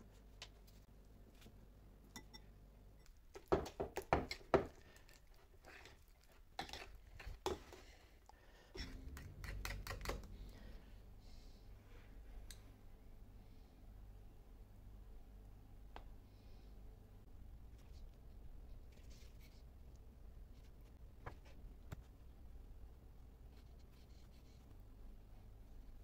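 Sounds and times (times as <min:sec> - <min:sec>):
soft rustle: 0:17.6 - 0:22.2.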